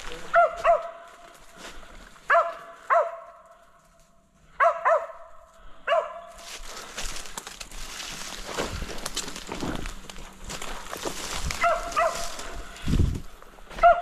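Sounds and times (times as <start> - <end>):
dog barking: 0.3 - 1.1, 2.3 - 3.4, 4.6 - 6.4, 11.6 - 12.4, 13.8 - 14.0.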